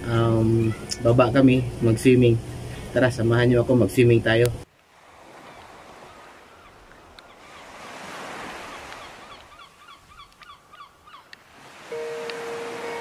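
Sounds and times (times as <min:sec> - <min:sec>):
waves washing on sandy shore: 0:04.8 - 0:09.6, 0:11.4 - 0:13.0
short repeated high calls: 0:11.9 - 0:13.0.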